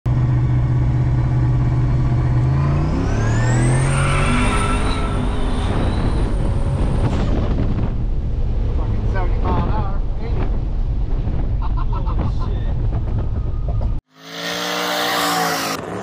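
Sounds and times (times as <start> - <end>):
car engine accelerating: 0.1 - 11.7.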